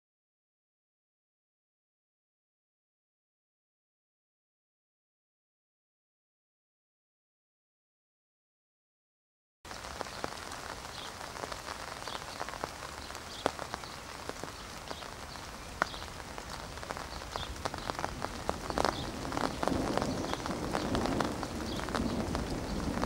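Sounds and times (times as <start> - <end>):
rain falling: 9.7 - 23.0
raindrops clicking on surface: 9.7 - 23.0.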